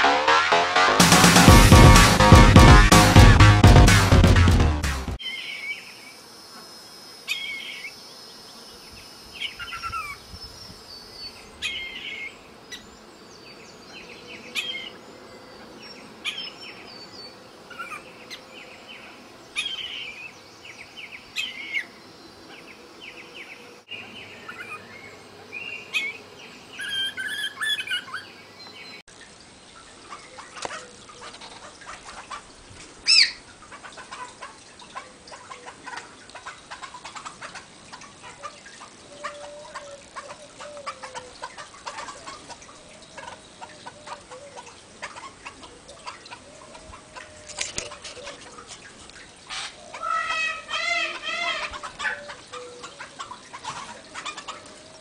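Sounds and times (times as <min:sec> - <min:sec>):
bird calling: 0:14.3 - 0:29.0, 0:33.1 - 0:33.4, 0:49.5 - 0:55.0.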